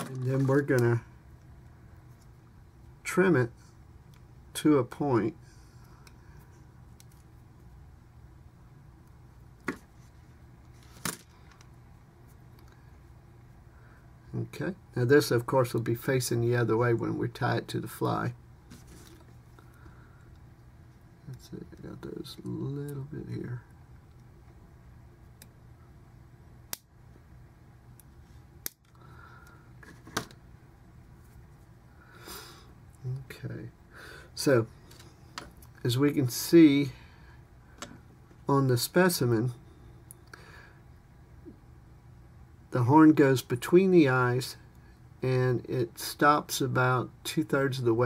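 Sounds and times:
faint low hum: 0.0 - 48.0.

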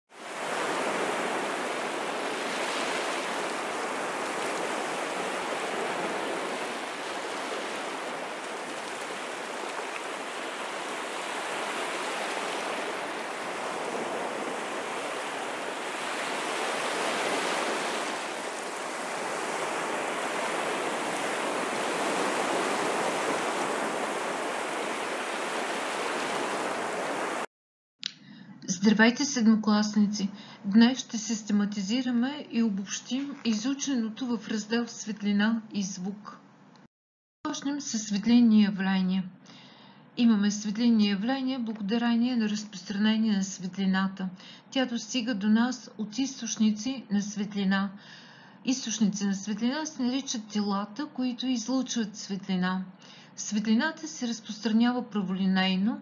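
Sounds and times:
rushing water: 0.1 - 27.5.

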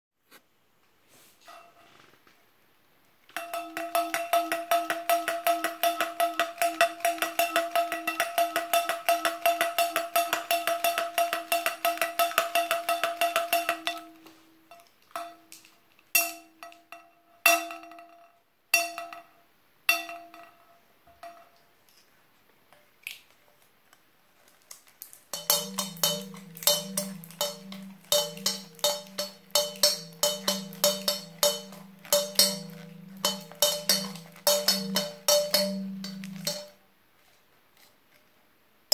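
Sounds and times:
lower-pitched bell ringing: 25.4 - 36.7
metal bell ringing: 25.4 - 36.7.

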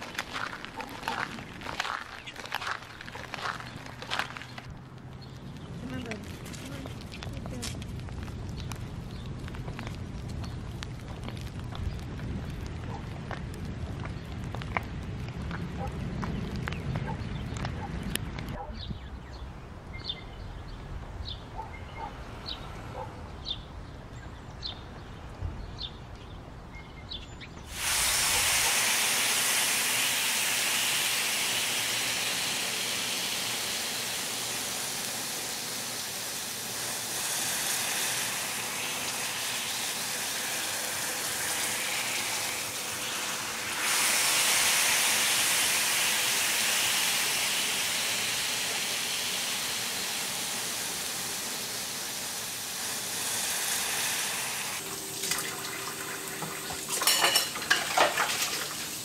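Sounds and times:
steak sizzling in a frying pan: 27.7 - 55.2
dishes clinking: 56.9 - 58.6.

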